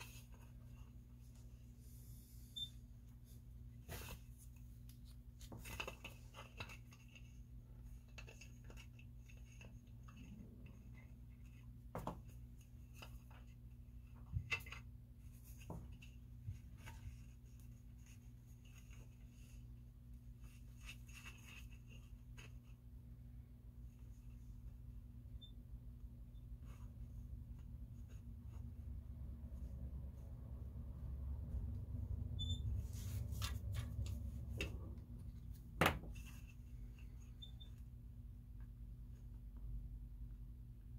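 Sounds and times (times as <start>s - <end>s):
steady low hum: 15.1s - 40.9s.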